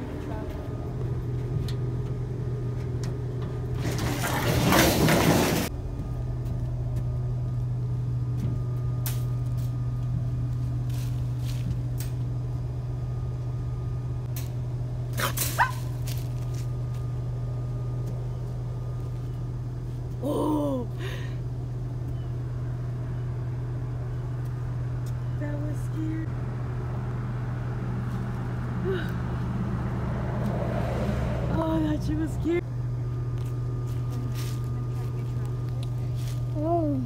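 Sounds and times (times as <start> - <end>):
loud rustling and scraping: 3.8 - 5.7
truck engine idling: 5.3 - 37.0.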